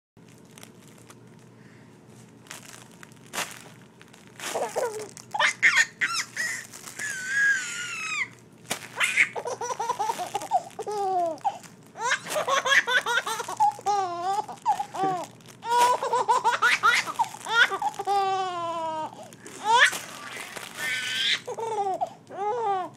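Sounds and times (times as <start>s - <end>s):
baby laughing: 4.5s - 8.3s, 9.0s - 22.9s.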